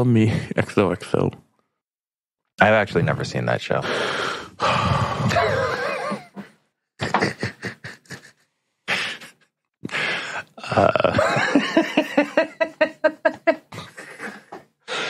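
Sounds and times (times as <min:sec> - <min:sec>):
person laughing: 0:05.2 - 0:09.5, 0:10.6 - 0:14.7.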